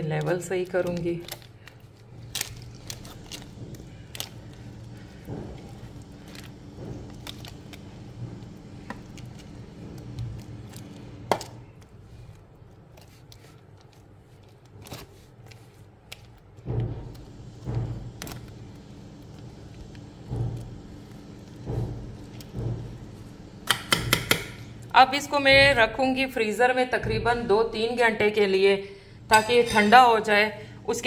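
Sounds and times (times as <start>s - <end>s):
spoon scraping biscuit mixture: 0.0s - 16.6s.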